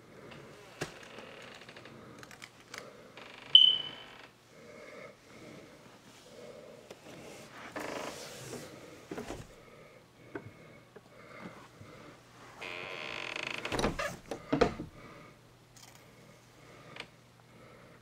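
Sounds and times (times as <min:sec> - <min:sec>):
door creaking on hinges: 0:00.7 - 0:01.9, 0:12.6 - 0:14.9.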